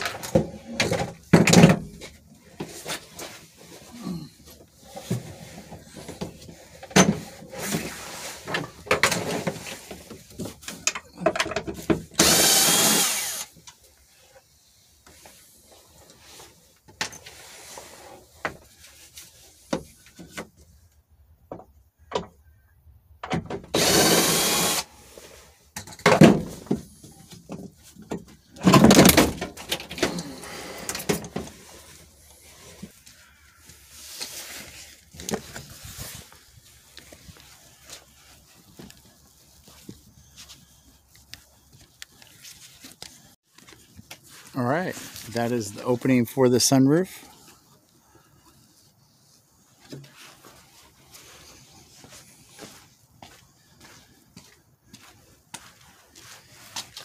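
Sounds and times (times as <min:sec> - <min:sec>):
knocks and rattles of parts: 0:00.0 - 0:03.9, 0:04.5 - 0:13.8, 0:23.2 - 0:24.8, 0:25.7 - 0:31.7
power driver spinning: 0:12.2 - 0:13.5, 0:23.7 - 0:24.9.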